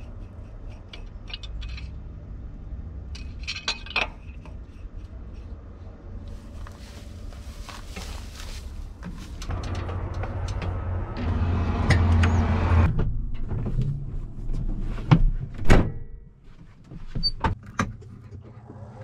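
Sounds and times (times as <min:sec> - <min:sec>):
rustling and scuffing on steps: 0:06.2 - 0:09.5.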